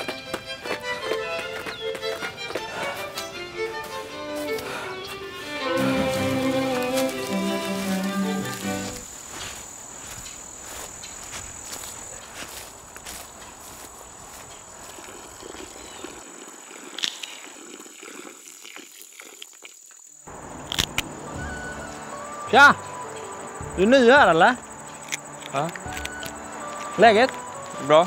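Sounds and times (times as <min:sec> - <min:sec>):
high-pitched insect drone: 0:00.0 - 0:13.2, 0:20.0 - 0:28.0
rustles and footsteps in undergrowth: 0:00.0 - 0:17.9, 0:18.6 - 0:28.0
twig snap: 0:20.6 - 0:21.1, 0:24.9 - 0:27.4.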